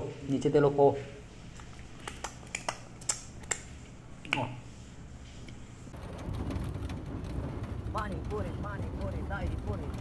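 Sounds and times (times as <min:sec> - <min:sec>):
eating clicks and smacks: 0:01.6 - 0:04.5
moving vehicle rumble: 0:05.9 - 0:10.0.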